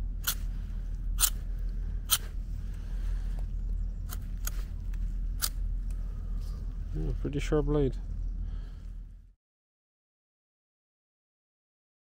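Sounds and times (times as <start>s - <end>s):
folding knife clicks: 1.2s - 1.4s.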